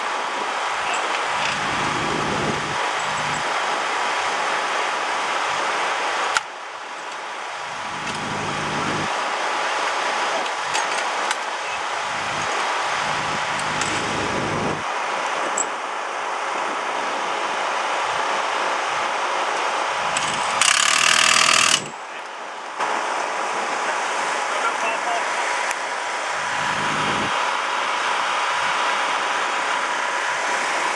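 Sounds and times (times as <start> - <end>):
background engine noise: 0.0 - 30.9
impact wrench rattling: 0.9 - 3.5, 7.8 - 8.9, 12.2 - 14.4, 20.1 - 21.9.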